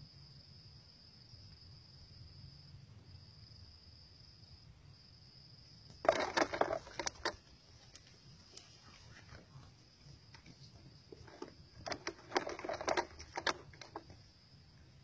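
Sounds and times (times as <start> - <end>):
insects chirring: 0.0 - 15.0
faint clicks: 5.9 - 14.2.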